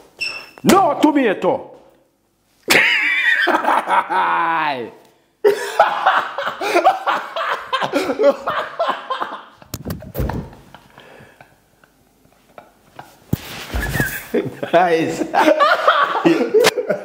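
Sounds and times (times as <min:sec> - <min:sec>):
laughter: 0:02.7 - 0:04.4, 0:05.4 - 0:09.7, 0:10.3 - 0:13.2, 0:13.8 - 0:17.0.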